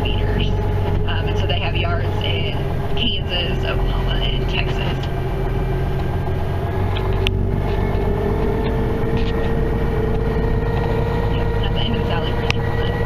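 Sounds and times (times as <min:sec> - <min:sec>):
rising whine: 0:00.0 - 0:13.0
vehicle engine and road noise: 0:00.0 - 0:13.0.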